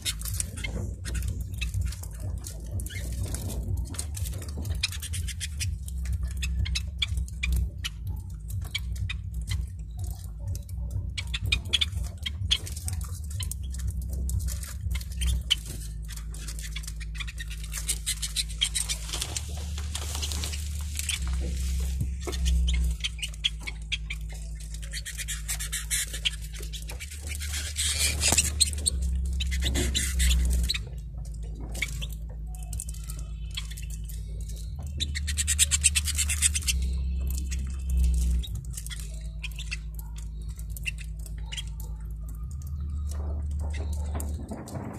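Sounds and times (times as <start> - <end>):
birds cracking seed: 0.0 - 44.9
high bird twittering: 0.0 - 44.9.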